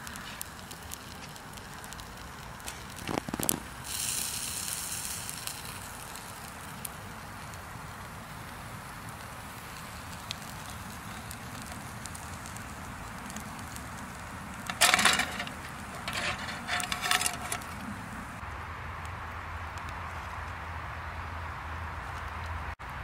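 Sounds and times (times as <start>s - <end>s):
charcoal fire hissing and crackling: 0.0s - 23.0s
wire basket clattering on metal tray: 14.6s - 17.9s.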